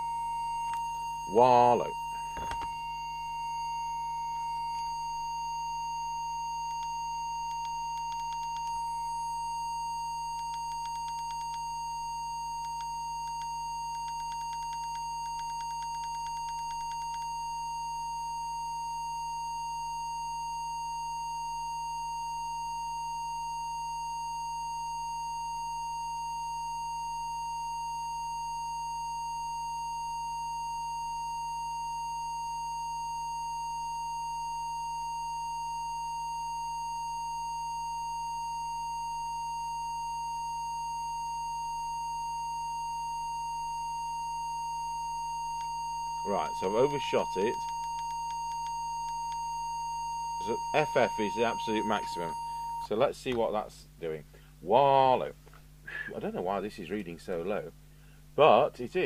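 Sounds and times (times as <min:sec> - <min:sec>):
steady test tone: 0:00.0 - 0:57.8.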